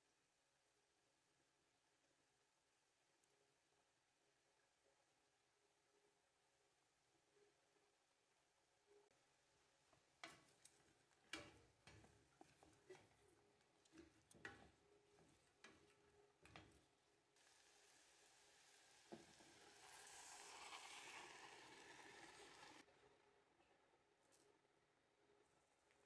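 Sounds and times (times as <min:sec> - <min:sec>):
wooden spoon knocking a metal pot: 0:13.8 - 0:16.9
sauce sizzling in a hot pot: 0:17.4 - 0:22.9.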